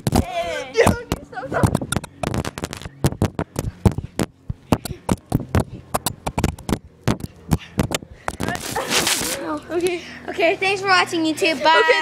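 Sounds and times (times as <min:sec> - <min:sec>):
camera knocking and clattering: 0:01.1 - 0:08.6.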